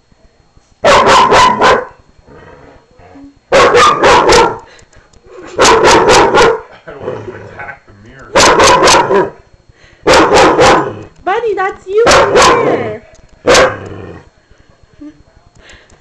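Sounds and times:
dog barking: 0.8s - 2.0s, 3.5s - 4.7s, 5.5s - 6.7s, 8.3s - 9.4s, 10.0s - 11.0s, 12.0s - 12.8s, 13.4s - 13.9s.

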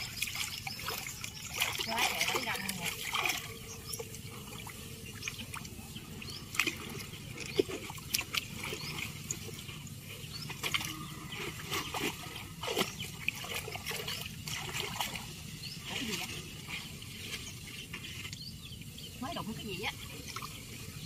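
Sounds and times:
water trickling from lifted net: 0.0s - 9.6s
short splashes and drips: 0.0s - 21.0s.

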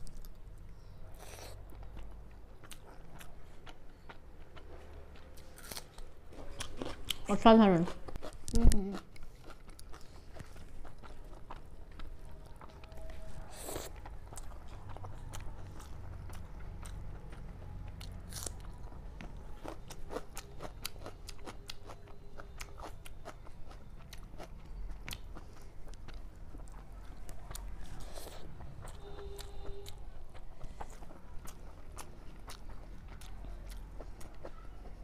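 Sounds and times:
chewing and mouth smacks: 8.1s - 35.0s.

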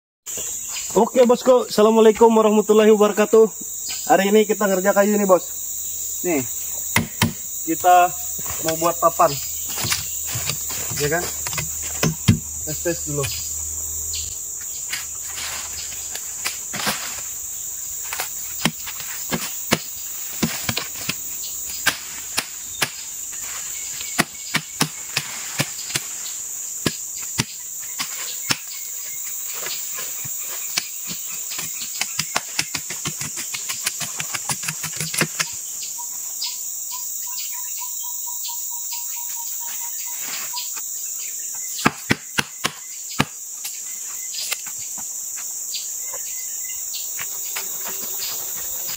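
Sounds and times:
rainforest insects droning: 0.2s - 48.9s
knocks on a wooden log: 7.0s - 7.4s, 9.7s - 12.5s.

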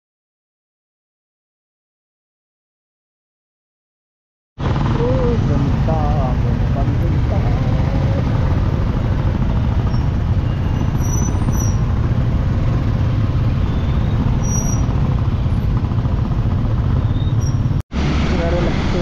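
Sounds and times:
loud low rumbling: 4.6s - 19.0s.

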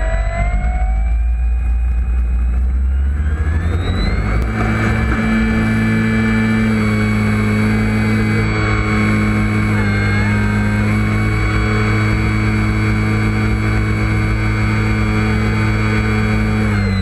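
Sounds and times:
model plane motor whine: 0.0s - 17.0s
wheels rolling on road: 1.5s - 17.0s.

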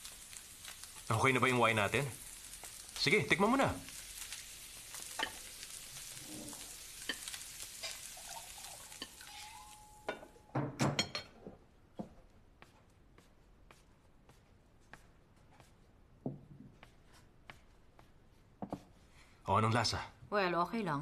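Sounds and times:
food sizzling in a frying pan: 0.0s - 10.3s
tongs and plates clattering: 5.1s - 5.5s.

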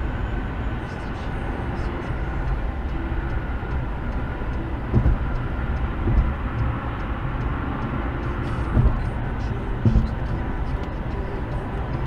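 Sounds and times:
car road and engine noise: 0.0s - 12.0s
dull thumps: 4.9s - 5.4s, 6.0s - 6.7s, 8.7s - 9.2s, 9.8s - 10.3s.

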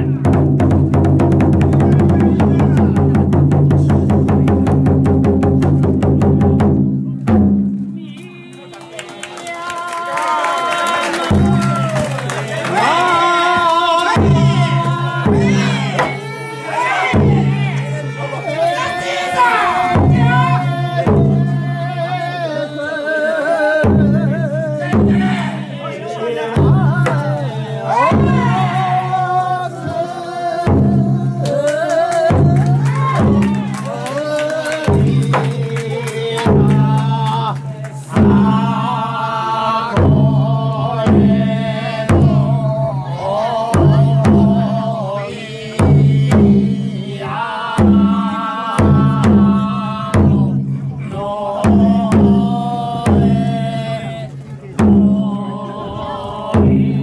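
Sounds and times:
voices singing chant-like melody: 1.7s - 4.7s, 8.0s - 57.0s
sharp drum strokes: 12.8s - 18.3s, 19.2s - 21.8s, 26.6s - 29.5s, 39.9s - 42.8s, 43.7s - 54.1s, 54.8s - 55.3s, 56.5s - 57.0s.

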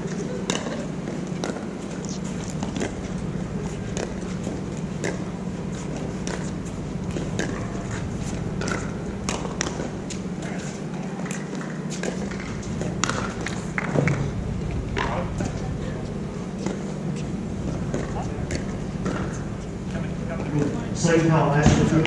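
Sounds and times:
steady low hum: 0.0s - 22.0s
pickleballs popping off paddles: 8.6s - 9.9s.

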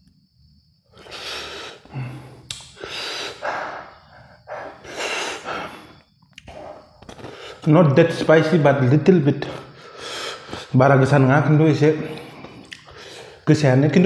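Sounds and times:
person breathing hard: 0.9s - 8.6s, 9.4s - 10.8s, 12.0s - 13.5s.

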